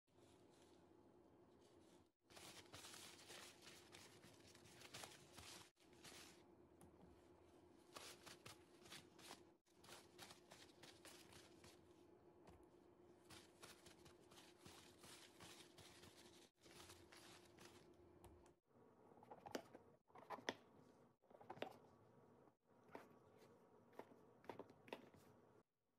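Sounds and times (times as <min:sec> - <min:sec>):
paper rustling: 0:02.3 - 0:06.4, 0:07.9 - 0:11.9, 0:13.2 - 0:18.0.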